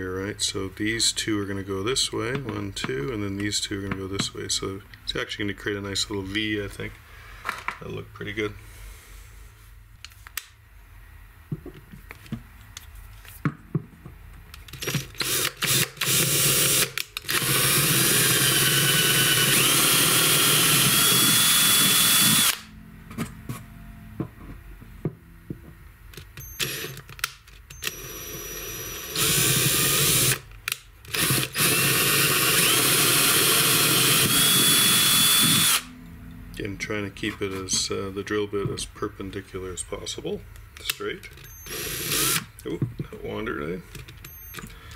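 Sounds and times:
cordless drill whine: 14.8s - 22.7s, 26.4s - 27.0s, 27.7s - 30.4s, 31.1s - 35.9s, 41.4s - 42.5s.

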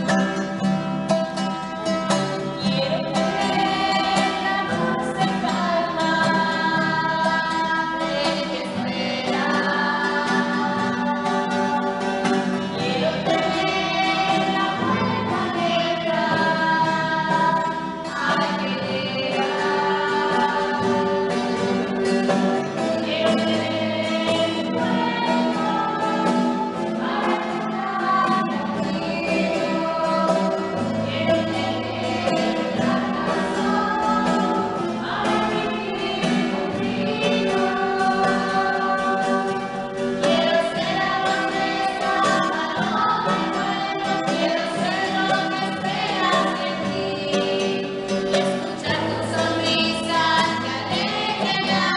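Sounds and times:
choir singing: 2.6s - 51.9s.

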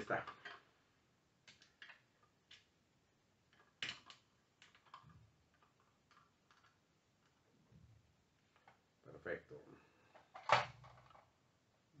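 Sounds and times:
plastic toy parts clicking: 3.5s - 6.8s.

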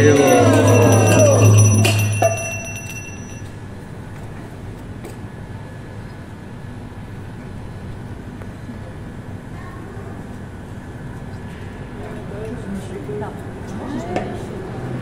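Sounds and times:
knock with ringing tone: 0.0s - 3.4s.

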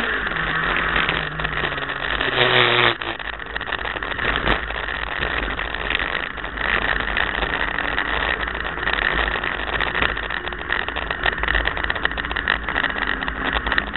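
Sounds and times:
car engine running: 0.0s - 13.9s
rattles and knocks in car cabin: 3.1s - 13.9s.

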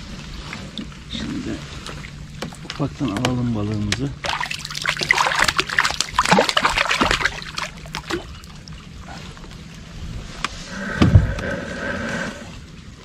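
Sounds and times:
fish splashing at surface: 4.2s - 8.8s.

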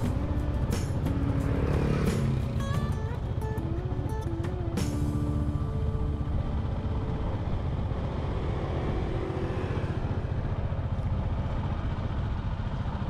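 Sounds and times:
motorbike engine running: 0.0s - 13.0s
wind and road noise: 0.0s - 13.0s.

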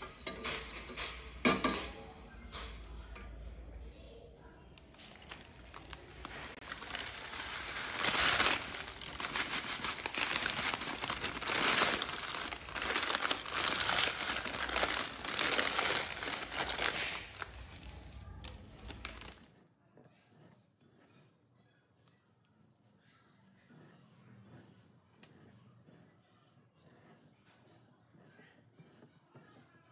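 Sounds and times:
plastic packet crinkling: 4.8s - 17.9s, 18.7s - 19.4s.

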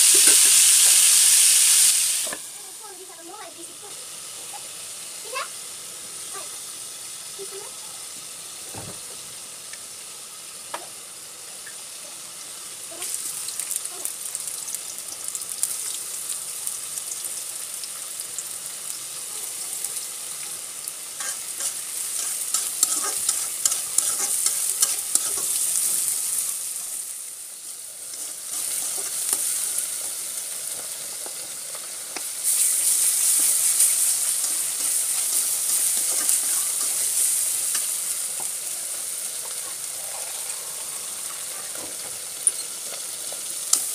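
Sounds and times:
onions sizzling in oil: 0.0s - 43.9s
metal spatula scraping pan: 21.2s - 25.6s.

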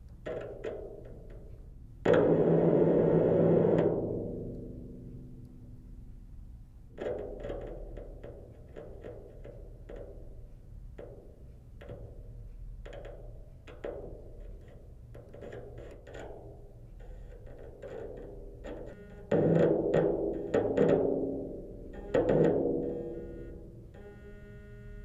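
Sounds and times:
clicks and taps through drumhead: 0.0s - 2.4s, 6.9s - 22.9s
low steady hum: 0.0s - 25.0s.

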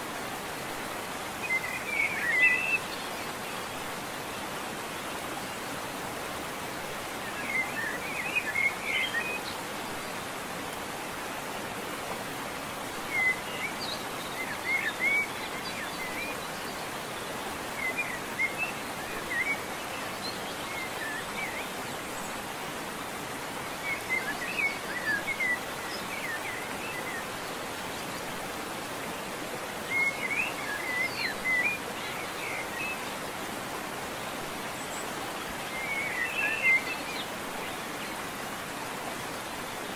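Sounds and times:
songbird chirping: 12.9s - 38.6s.

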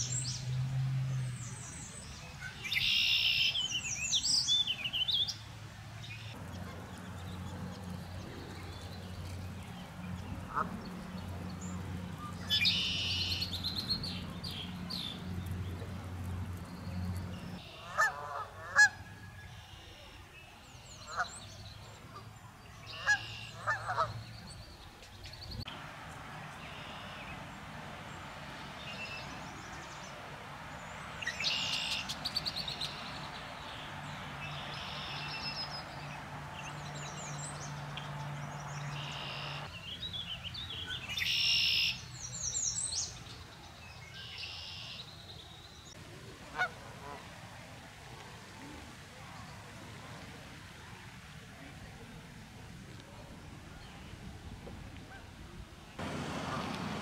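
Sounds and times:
geese honking: 10.4s - 11.4s, 17.5s - 19.1s, 22.9s - 24.2s, 37.8s - 39.7s, 46.5s - 47.3s, 56.0s - 57.0s.

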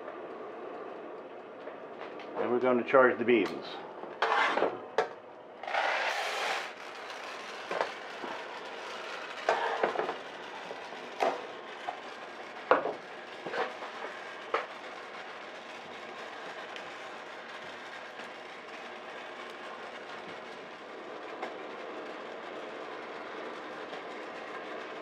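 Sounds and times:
oven fan whirring: 0.0s - 25.0s
beans tumbling and rattling: 5.7s - 24.4s
coffee beans poured into pan: 5.7s - 24.8s.

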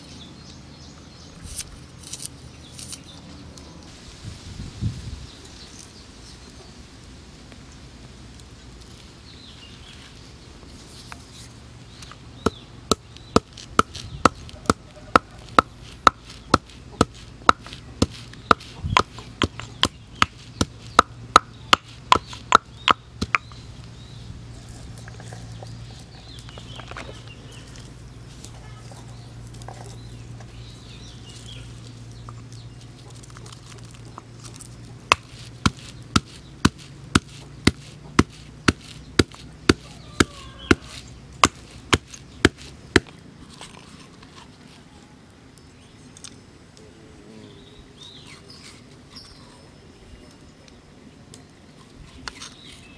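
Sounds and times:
stone pestle pounding in mortar: 12.4s - 23.5s, 35.1s - 43.1s.

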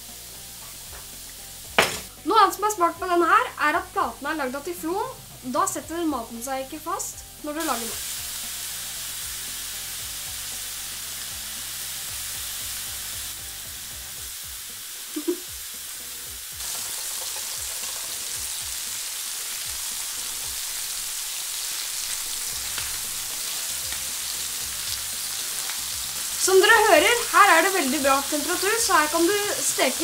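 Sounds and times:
burger patties sizzling on grill: 0.0s - 30.0s
spatula turning a patty: 16.6s - 19.6s.

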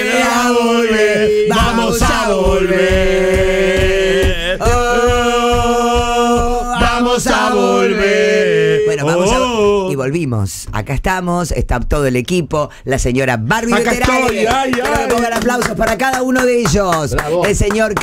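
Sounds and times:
steady music beat: 0.0s - 9.9s.

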